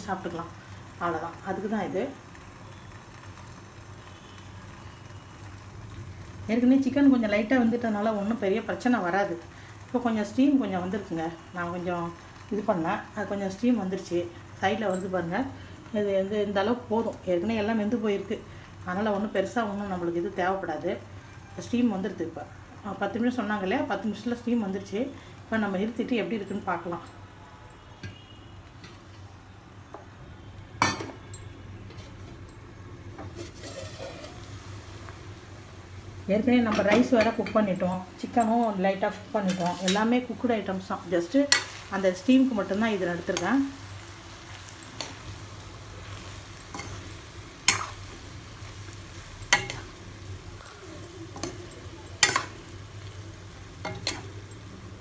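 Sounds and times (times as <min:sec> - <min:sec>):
metal spatula clanking on pan: 0:30.8 - 0:31.4, 0:33.2 - 0:34.5, 0:39.4 - 0:40.1, 0:41.5 - 0:42.0, 0:46.7 - 0:48.0, 0:49.4 - 0:50.0, 0:50.6 - 0:52.7, 0:53.8 - 0:54.7
steel cookware clinking: 0:30.8 - 0:32.6, 0:33.2 - 0:34.5, 0:36.7 - 0:40.2, 0:41.3 - 0:43.8, 0:46.1 - 0:48.2, 0:49.2 - 0:50.0, 0:50.6 - 0:55.0
spatula scraping through rice: 0:33.3 - 0:34.5.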